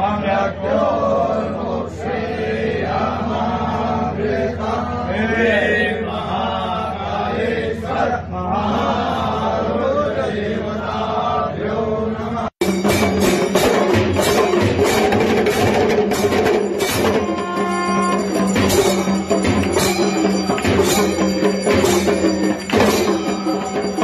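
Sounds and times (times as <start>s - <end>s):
voices chanting together: 0.0s - 12.8s, 18.1s - 24.0s.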